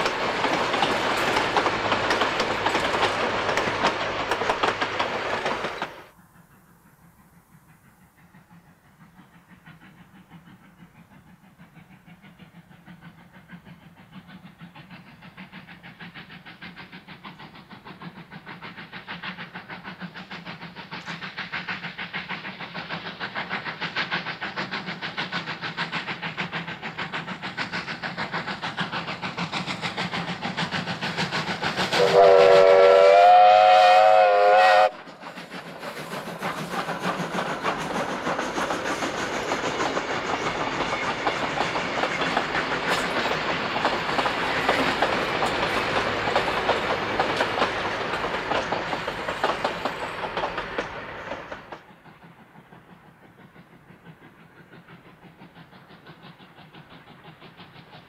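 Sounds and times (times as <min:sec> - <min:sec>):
steam locomotive exhaust beats: 0:00.0 - 0:58.0
train wheels clicking over rail joints: 0:00.0 - 0:58.0
steam whistle: 0:31.9 - 0:35.0.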